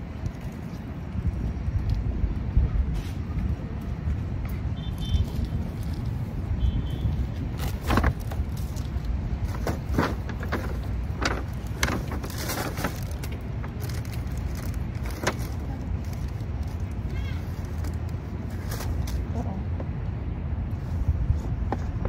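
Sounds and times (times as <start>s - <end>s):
paper bag rustling: 7.5s - 19.4s.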